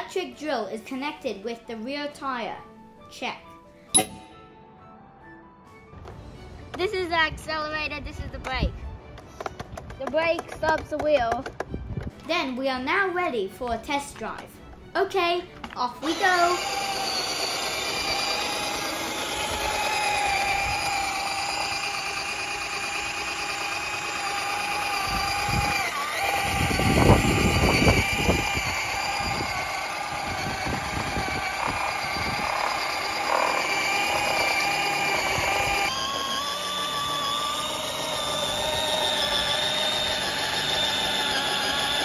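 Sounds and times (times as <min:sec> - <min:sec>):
tyres rumbling over concrete: 0:15.4 - 0:42.0
power drill motor whining: 0:15.6 - 0:42.0.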